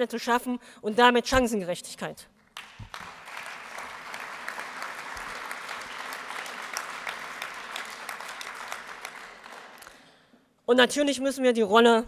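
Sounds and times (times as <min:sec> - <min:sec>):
audience applauding: 0:02.5 - 0:10.2.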